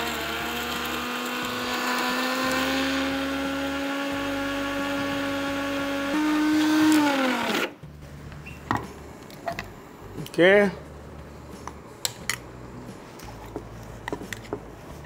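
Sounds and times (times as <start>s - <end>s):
mixer grinder grinding spices: 0.0s - 7.7s.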